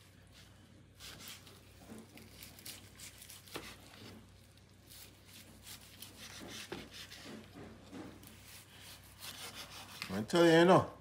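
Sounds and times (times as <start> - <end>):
knife crunching through crisp skin: 1.0 - 7.2.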